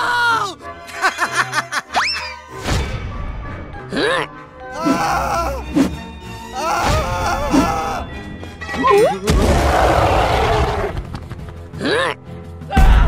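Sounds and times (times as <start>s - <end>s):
background music: 0.0s - 13.0s
cartoon character cries: 4.0s - 5.7s, 6.5s - 8.1s.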